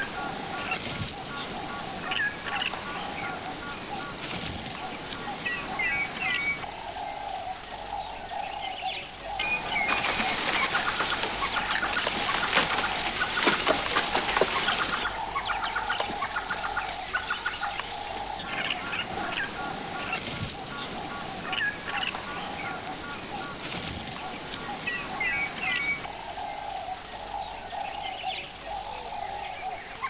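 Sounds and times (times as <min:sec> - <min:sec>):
rustling and crackling: 0:00.0 - 0:05.5, 0:09.4 - 0:26.1
wild birds clucking and chirping: 0:00.0 - 0:30.0.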